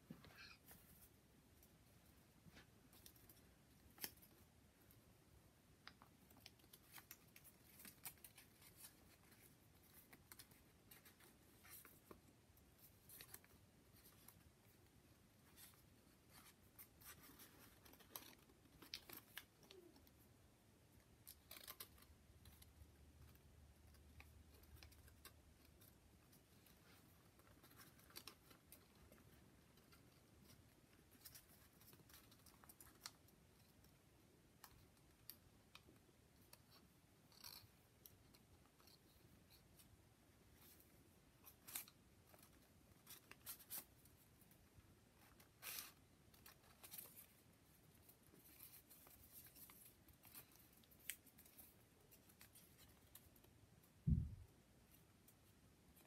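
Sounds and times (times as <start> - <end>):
paper rustling and ticking: 5.8 - 20.2, 21.0 - 39.9.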